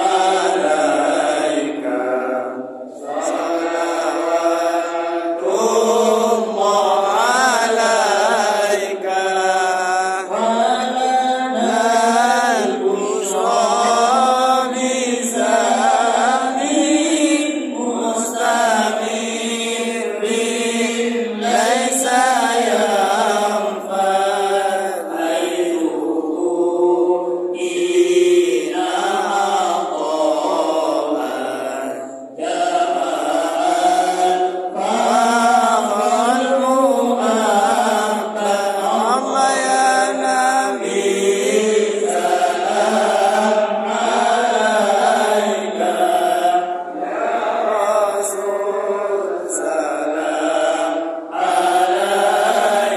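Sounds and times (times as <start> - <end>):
men chanting in unison: 0.0 - 52.9.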